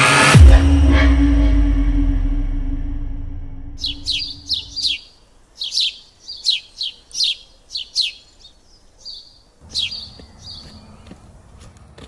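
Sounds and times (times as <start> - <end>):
electronic music: 0.0 - 4.8
bird chirping: 3.8 - 11.4.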